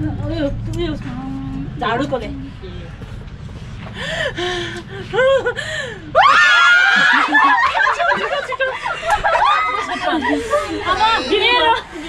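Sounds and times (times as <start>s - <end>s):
people gasping and laughing: 3.0s - 12.0s
high-pitched scream: 6.2s - 7.3s.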